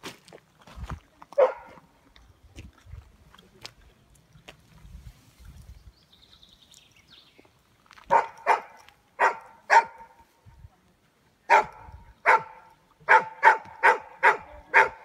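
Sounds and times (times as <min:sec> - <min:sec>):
dog barking: 0:01.4 - 0:01.8, 0:08.1 - 0:10.2, 0:11.5 - 0:15.0.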